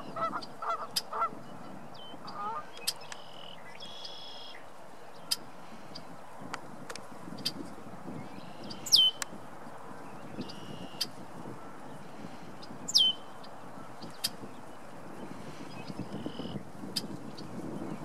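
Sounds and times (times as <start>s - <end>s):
sharp bird call notes: 12.9s - 13.2s.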